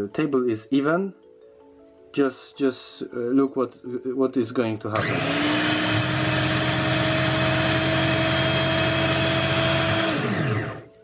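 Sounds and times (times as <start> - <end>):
grinding wheel spinning down: 5.0 - 11.0
motor whining and humming: 5.0 - 11.0.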